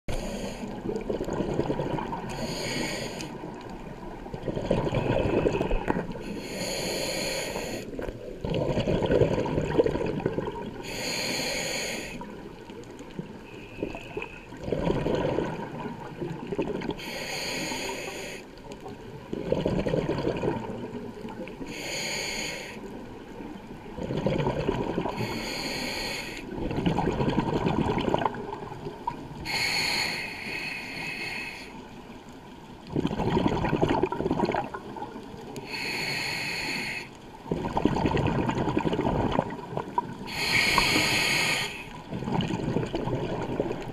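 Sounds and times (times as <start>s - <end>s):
regulator hissing inhale: 0.1s - 1.0s, 2.2s - 3.7s, 5.4s - 8.1s, 10.8s - 12.4s, 17.0s - 18.7s, 21.6s - 23.0s, 25.1s - 26.5s, 29.4s - 31.9s, 35.6s - 37.2s, 40.2s - 42.0s
exhaled bubbles rumbling: 0.7s - 2.5s, 3.3s - 6.6s, 8.0s - 10.9s, 12.2s - 17.0s, 18.7s - 21.6s, 23.1s - 25.4s, 26.5s - 29.5s, 32.7s - 35.5s, 37.4s - 41.1s, 41.9s - 43.9s.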